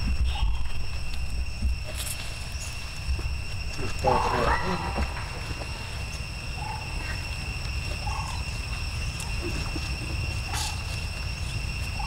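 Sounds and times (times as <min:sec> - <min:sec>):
low rumble: 0:00.0 - 0:07.8
monkeys squeaking calls: 0:03.8 - 0:07.2.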